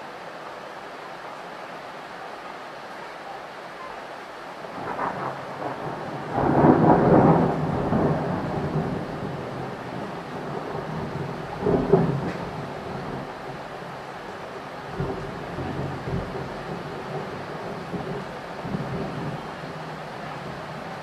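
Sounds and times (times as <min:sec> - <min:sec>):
steady rain: 0:00.0 - 0:21.0
thunder rumbling: 0:04.7 - 0:21.0.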